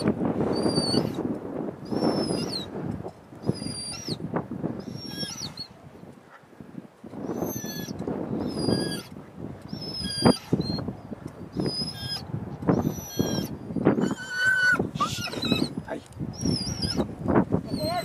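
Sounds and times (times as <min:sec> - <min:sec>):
dog whining: 0:00.5 - 0:01.2, 0:01.9 - 0:02.7, 0:03.4 - 0:04.2, 0:04.8 - 0:05.7, 0:07.2 - 0:09.1, 0:09.7 - 0:10.9, 0:11.6 - 0:18.0.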